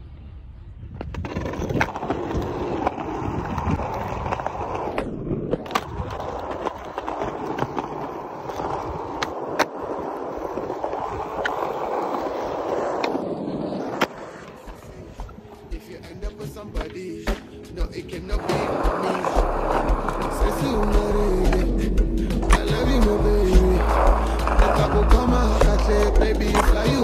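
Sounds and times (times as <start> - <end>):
skateboard wheels rolling: 0.1 - 27.0
skateboard clicks: 0.9 - 27.0
skateboard landing clack: 4.2 - 9.9.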